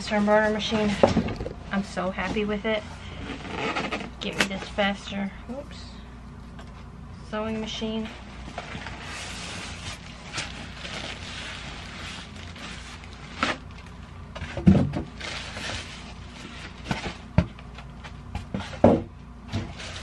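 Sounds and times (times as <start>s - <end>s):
plastic wrapping crinkling: 8.0s - 14.3s, 15.1s - 17.0s.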